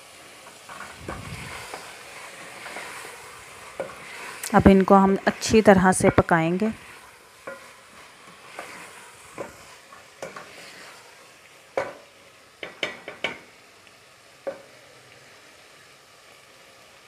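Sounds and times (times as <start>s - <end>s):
faint sizzling: 0.0s - 17.0s
wooden spoon scraping a pot: 0.4s - 13.1s.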